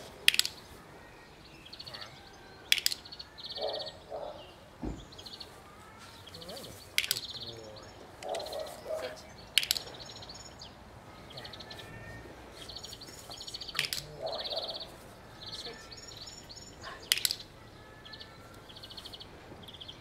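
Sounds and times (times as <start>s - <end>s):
sharp clicks: 0.2s - 0.7s, 2.7s - 3.2s, 6.9s - 7.5s, 9.5s - 10.1s, 13.4s - 14.2s, 17.0s - 17.5s
soft thump: 4.8s - 5.2s.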